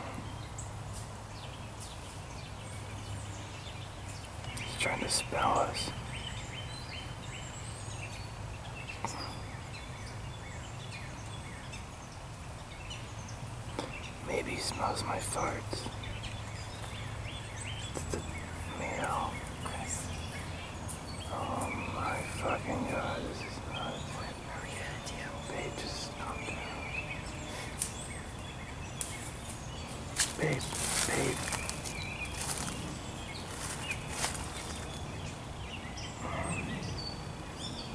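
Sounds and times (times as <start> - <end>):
faint birdsong: 0.0 - 37.9
steady low rumble: 11.1 - 37.7.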